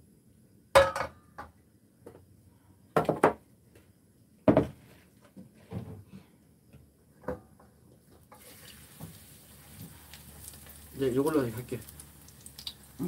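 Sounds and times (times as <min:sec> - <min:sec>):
cookware knocking and clattering: 0:00.8 - 0:01.5.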